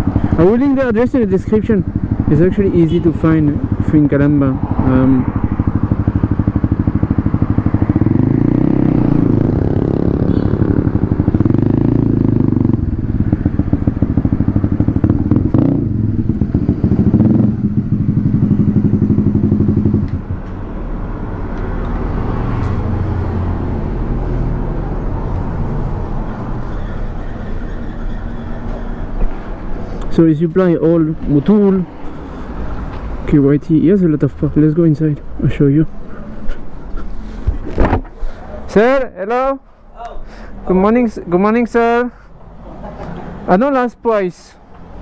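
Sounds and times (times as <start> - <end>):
motorcycle engine running: 0.0 - 20.5
street background noise: 0.0 - 45.0.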